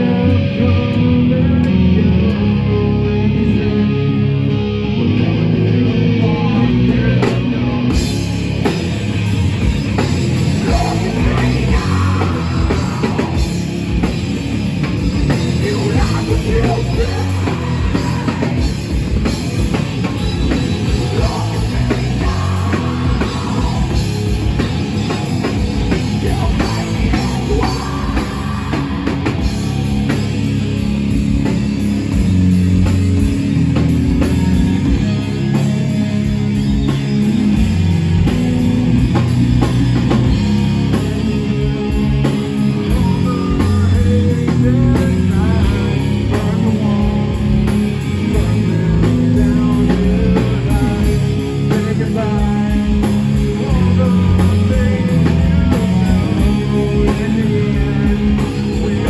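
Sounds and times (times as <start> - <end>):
person singing into a microphone: 0.0 - 4.2, 10.6 - 13.5, 15.3 - 18.7, 26.2 - 29.1, 42.9 - 59.0
bass guitar: 0.0 - 59.0
electric guitars: 0.0 - 59.0
drum kit: 4.5 - 59.0.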